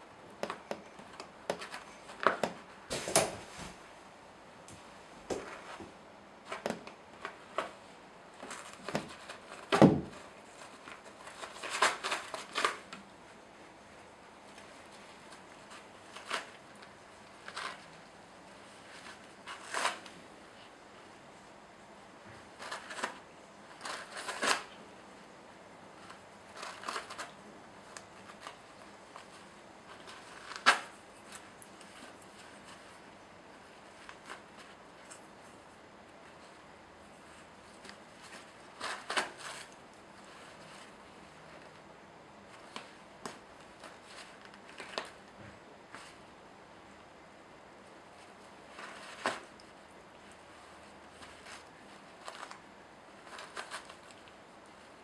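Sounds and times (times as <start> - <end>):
cat scratching toilet paper: 8.4 - 13.0, 14.5 - 20.7, 22.4 - 24.8, 26.0 - 35.6, 36.4 - 41.8, 48.2 - 55.0.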